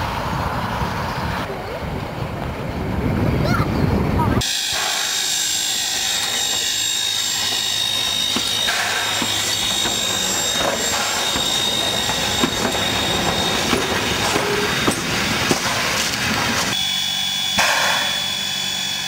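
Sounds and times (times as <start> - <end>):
steam locomotive rumble and hiss: 0.0 - 19.0
wheels clicking on track: 6.3 - 16.8.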